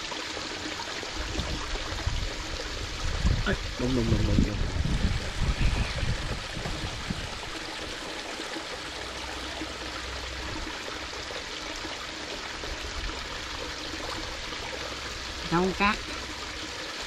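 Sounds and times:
water trickling and rushing: 0.0 - 17.0.

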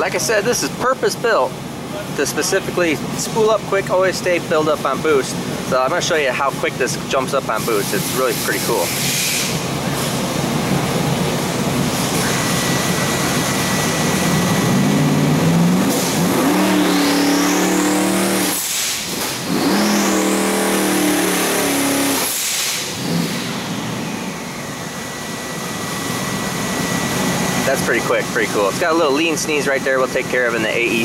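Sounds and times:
turbo whine: 6.6 - 31.0
engine revving from idle: 7.5 - 29.1
engine sneeze: 7.6 - 10.2, 12.0 - 12.7, 15.8 - 23.7.

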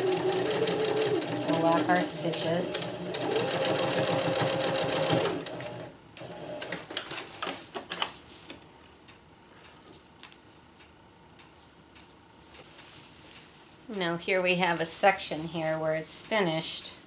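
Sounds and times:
sewing machine stitching: 0.0 - 6.8.

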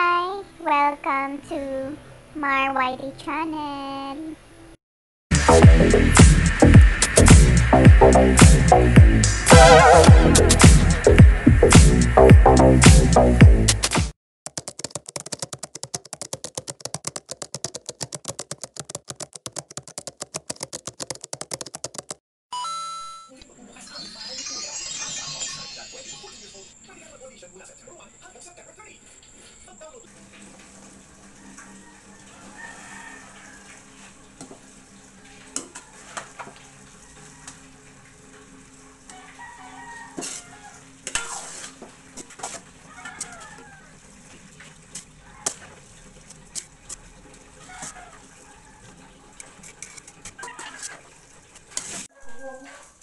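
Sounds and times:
keyboard key clicks: 14.5 - 22.2
rooster crowing: 31.3 - 34.0, 36.7 - 37.8, 39.1 - 41.0, 42.8 - 44.0
tongs and ladle scraping pan: 40.2 - 40.5.

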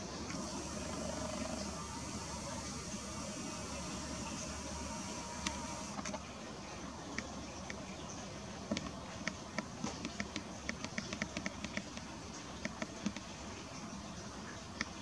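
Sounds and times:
steady low hiss: 0.0 - 15.0
small sharp clicks and taps: 8.7 - 13.3.

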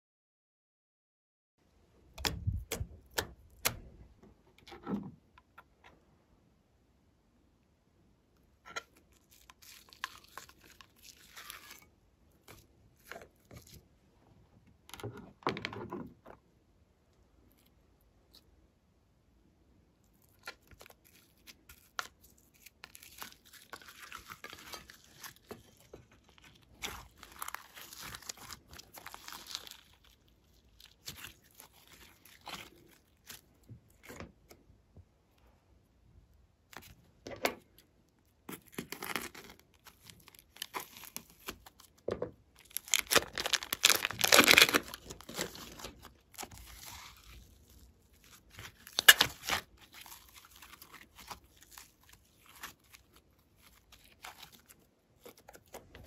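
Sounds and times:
slime squelching by hand: 20.0 - 34.5, 42.6 - 56.0.

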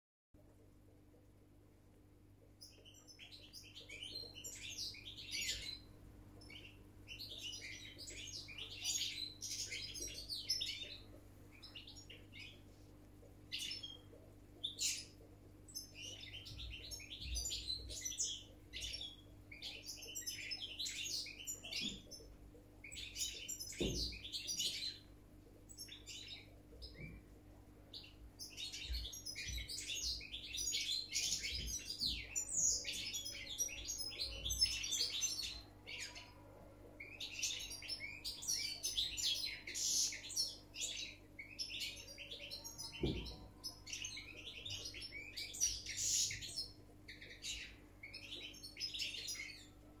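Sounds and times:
goldfinch singing: 2.5 - 25.1, 27.9 - 36.4, 37.0 - 49.7.

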